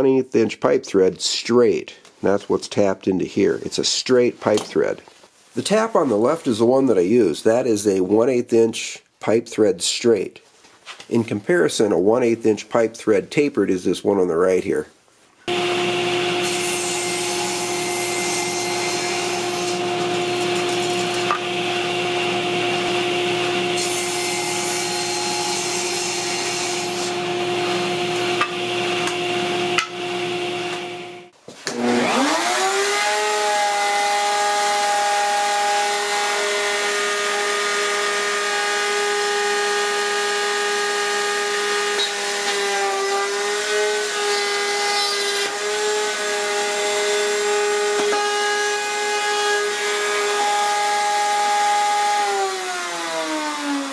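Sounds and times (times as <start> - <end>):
table saw cutting wood: 15.5 - 53.9.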